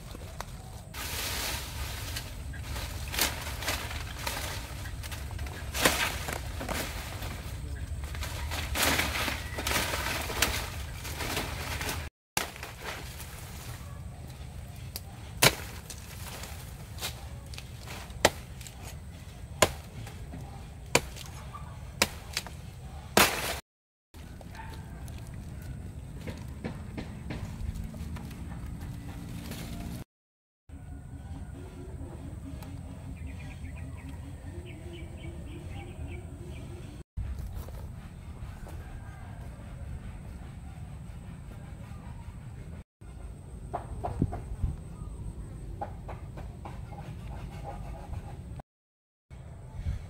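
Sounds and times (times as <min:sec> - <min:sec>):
dry grass rustling and crackling: 0:00.0 - 0:20.1, 0:27.4 - 0:30.0
stalks snapping: 0:02.1 - 0:13.5, 0:14.9 - 0:18.9.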